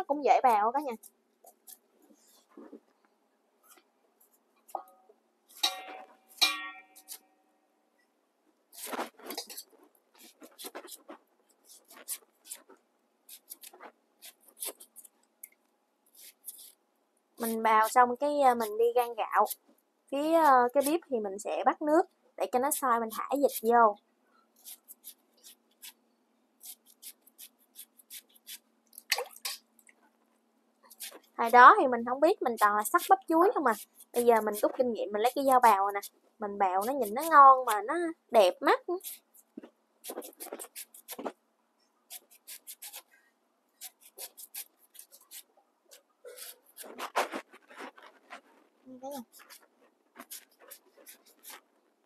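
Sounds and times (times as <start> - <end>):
knife shaving banana blossom: 8.7 - 15.2, 16.1 - 16.8, 17.4 - 21.1, 22.5 - 23.8, 24.6 - 26.0, 26.6 - 29.6, 30.9 - 41.4, 42.1 - 43.1, 43.8 - 45.5, 46.3 - 51.7.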